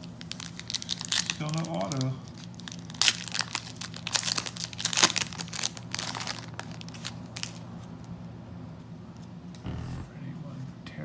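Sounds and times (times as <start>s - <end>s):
foil wrapper crinkling: 0.0s - 7.8s.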